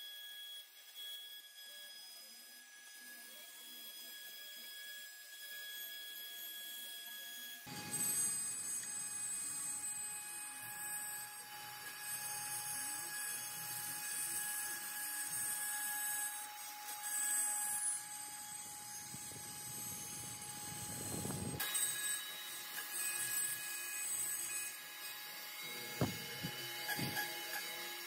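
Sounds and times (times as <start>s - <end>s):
router spindle high-pitched whine: 0.0s - 28.0s
bit cutting wood: 7.7s - 28.0s.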